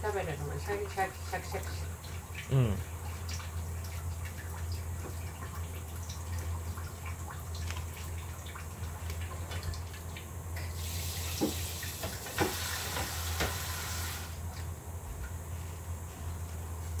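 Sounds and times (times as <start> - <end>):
water running into a sink: 0.0 - 14.4
steady low hum: 14.2 - 17.0.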